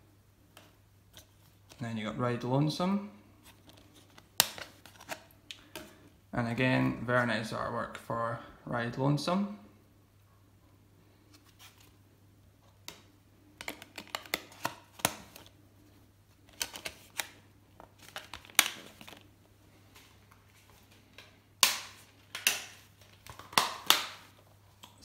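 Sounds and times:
plastic cases clicking: 12.9 - 15.5.

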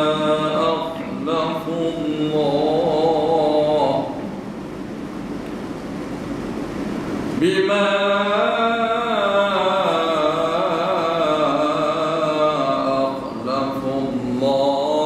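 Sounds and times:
man chanting melodically: 0.0 - 4.3, 7.4 - 15.0.

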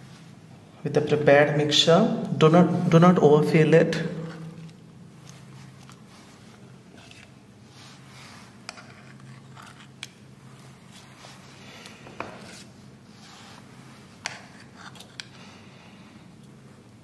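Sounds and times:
low steady hum: 0.0 - 17.0
spoons scraping batter: 4.2 - 15.5.

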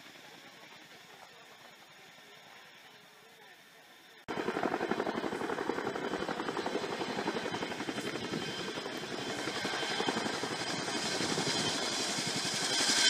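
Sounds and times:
helicopter rotors chopping: 4.3 - 13.0.

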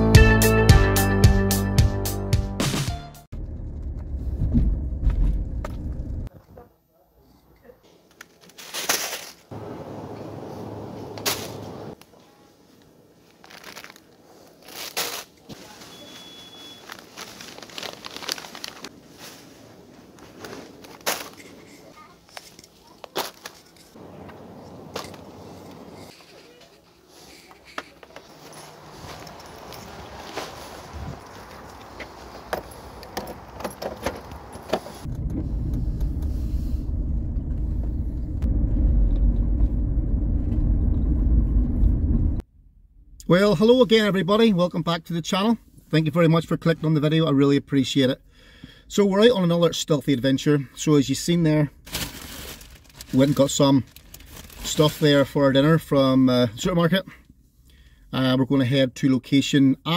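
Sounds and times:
car engine rumbling inside cabin: 3.4 - 6.3, 34.4 - 43.2
plastic and paper bags crinkling: 13.2 - 24.0, 51.8 - 55.2
faint short high beep: 15.8 - 16.9.

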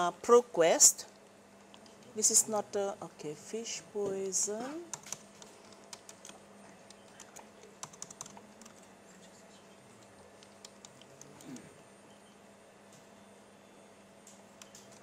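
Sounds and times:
keyboard keys tapping: 4.9 - 8.8.

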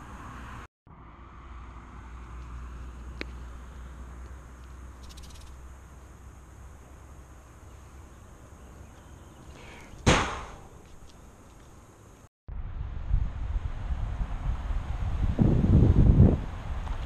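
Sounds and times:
steady low rumble: 12.5 - 17.0.

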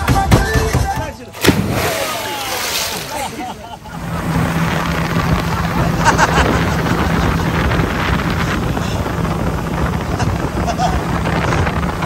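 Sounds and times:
engine rumble: 1.4 - 12.0
wind noise on microphone: 4.0 - 12.0.

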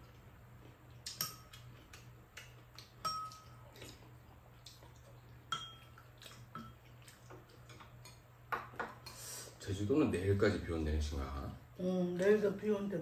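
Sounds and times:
faint low hum: 0.0 - 13.0
spoon and chopsticks clinking bowls: 3.0 - 3.6, 5.5 - 6.9.

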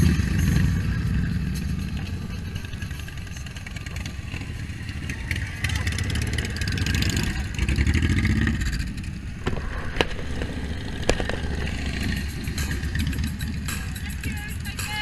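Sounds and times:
motorcycles passing: 0.0 - 15.0.

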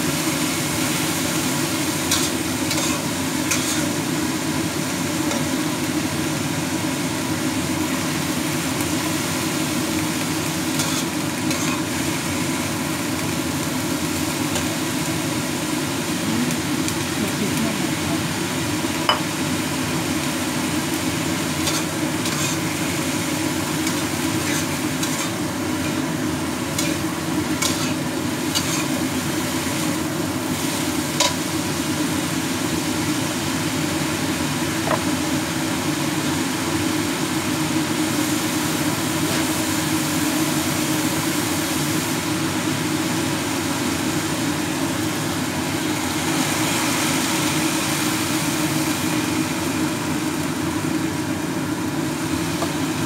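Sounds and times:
bean sprouts sizzling in a wok: 0.0 - 53.0
metal spatula scraping a pan: 2.1 - 4.0, 10.7 - 11.9, 21.6 - 22.8, 23.8 - 26.0, 26.7 - 29.1.

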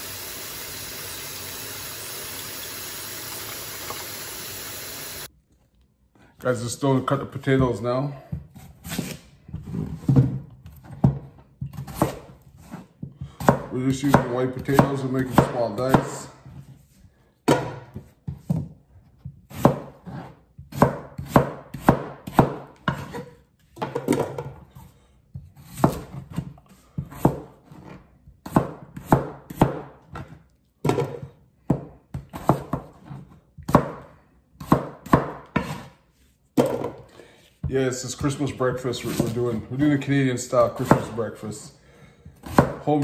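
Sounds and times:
knife chopping on plastic board: 11.0 - 16.4, 17.4 - 24.4, 25.5 - 35.9, 40.8 - 41.2, 42.4 - 42.9.

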